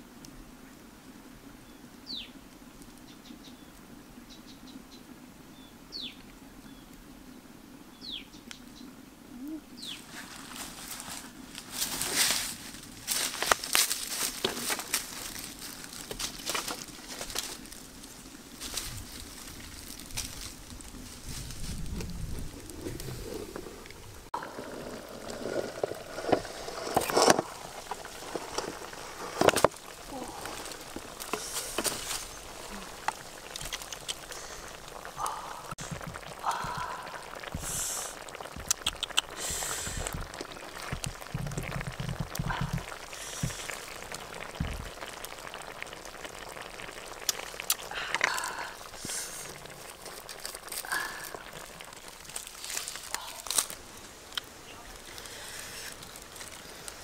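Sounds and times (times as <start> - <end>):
liquid bubbling: 21.7 - 57.0.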